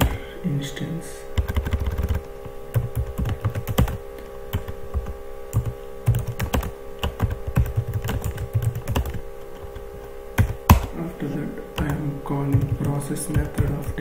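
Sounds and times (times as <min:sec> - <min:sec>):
faint steady hum: 0:00.0 - 0:14.0
computer keyboard keystrokes: 0:01.4 - 0:02.2, 0:02.8 - 0:09.8, 0:11.8 - 0:14.0.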